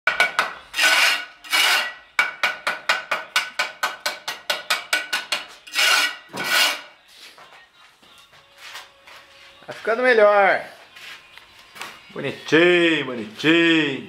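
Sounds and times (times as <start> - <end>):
trowel scraping concrete: 0.7 - 2.0, 5.5 - 6.9.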